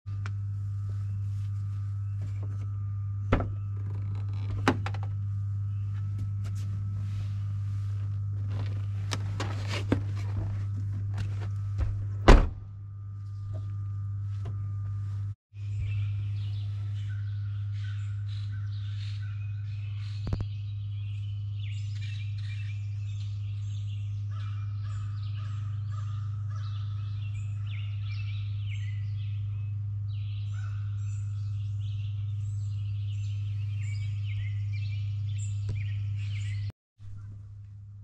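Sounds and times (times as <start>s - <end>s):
steady low hum: 0.1s - 38.0s
birds calling: 15.6s - 37.4s.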